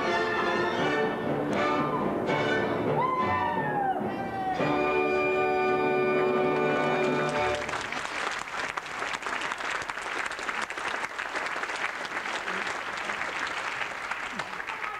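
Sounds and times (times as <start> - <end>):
audience applauding: 6.3 - 14.9.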